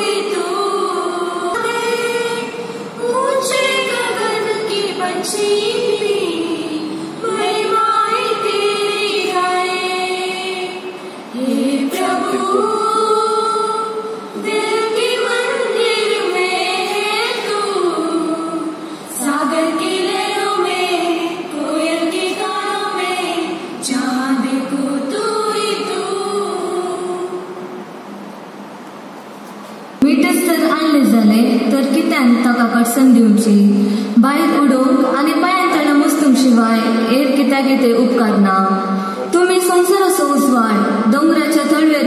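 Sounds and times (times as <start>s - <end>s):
women singing together: 0.0s - 27.8s.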